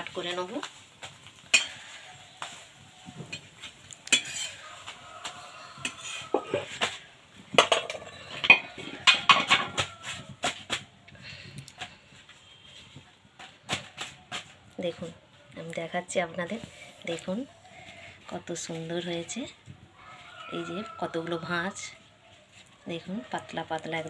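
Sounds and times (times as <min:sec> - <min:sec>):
metal spatula scraping an iron pan: 0:01.5 - 0:02.6, 0:03.2 - 0:07.0.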